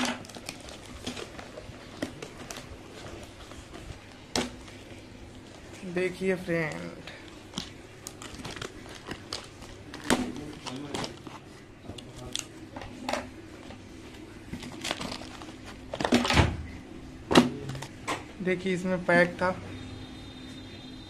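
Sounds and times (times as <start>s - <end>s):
cardboard rustling and scraping: 0.2s - 5.7s, 7.6s - 12.4s.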